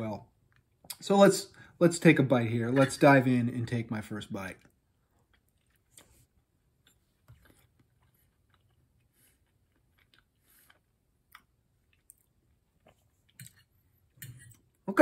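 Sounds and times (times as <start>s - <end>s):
faint chewing: 4.5s - 14.8s.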